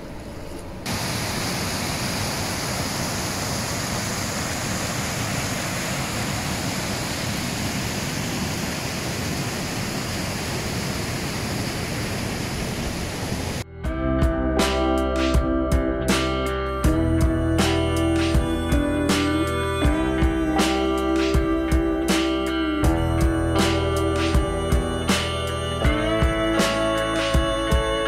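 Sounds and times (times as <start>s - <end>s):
steady rushing noise: 0.0s - 13.6s.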